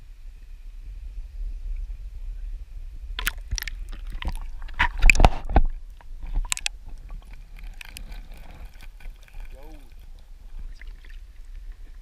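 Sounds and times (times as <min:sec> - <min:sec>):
muffled underwater gurgling: 0:03.2 - 0:12.0
water splashing: 0:03.2 - 0:12.0.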